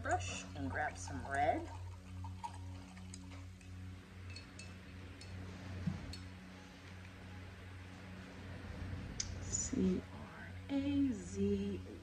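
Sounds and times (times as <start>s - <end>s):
low steady hum: 0.0s - 12.0s
paintbrush clinking against cup: 4.2s - 5.4s.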